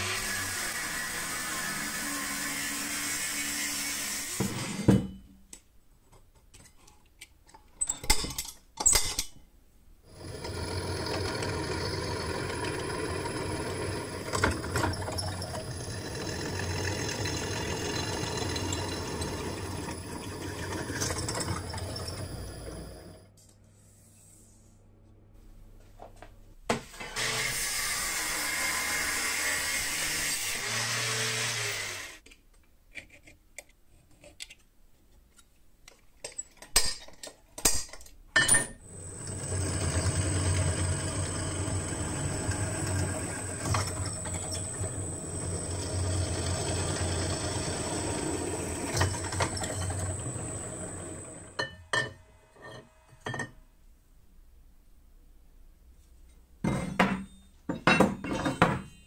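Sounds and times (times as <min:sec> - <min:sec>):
angle grinder cutting steel: 0:00.0 - 0:04.4, 0:10.1 - 0:23.2, 0:27.2 - 0:32.2, 0:38.9 - 0:51.6
drill press whining: 0:10.1 - 0:23.3, 0:38.8 - 0:51.7
steel plates clinking on wood: 0:56.7 - 0:59.0.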